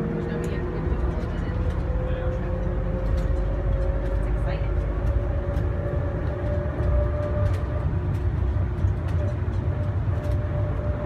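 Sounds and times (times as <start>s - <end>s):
faint tram whine: 0.0s - 11.0s
tram rumbling: 0.0s - 11.0s
light clicks and rattles: 0.2s - 10.9s.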